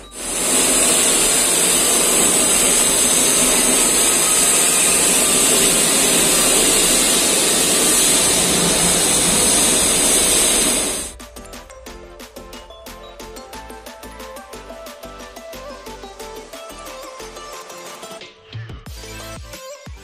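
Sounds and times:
power tool high-pitched whine: 0.0 - 11.2.

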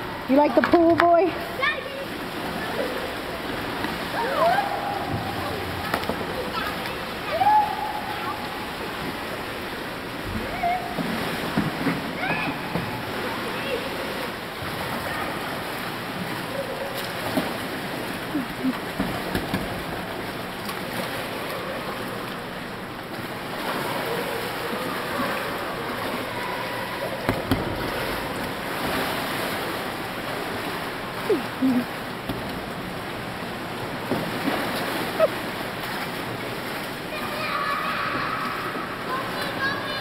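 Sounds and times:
water splashing and sloshing: 0.0 - 40.0
sharp water slaps: 2.2 - 9.3, 10.4 - 22.4, 27.0 - 33.0, 34.0 - 38.9.

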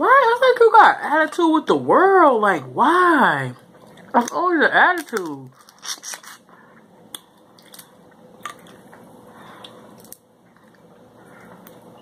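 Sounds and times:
crab shell cracking: 9.6 - 10.9.

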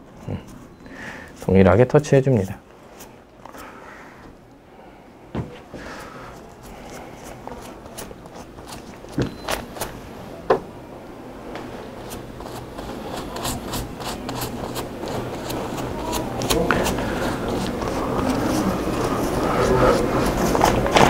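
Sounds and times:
brush scraping on paper: 5.8 - 9.9, 12.0 - 21.0.

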